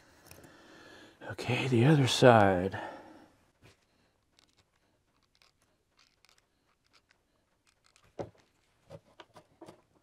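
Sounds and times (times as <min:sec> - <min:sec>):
wooden model parts clicking: 0:03.7 - 0:09.4.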